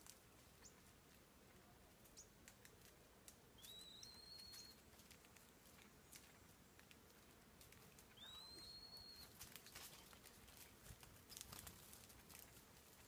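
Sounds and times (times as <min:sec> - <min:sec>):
faint ticks and rustles: 0:00.0 - 0:13.0
bird whistled call: 0:03.6 - 0:04.8, 0:08.2 - 0:09.3.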